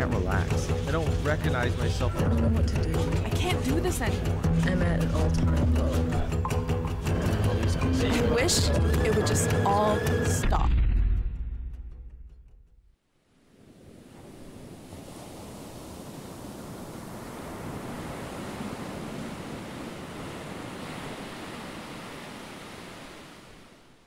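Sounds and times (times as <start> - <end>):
rushing water like surf: 13.2 - 24.0.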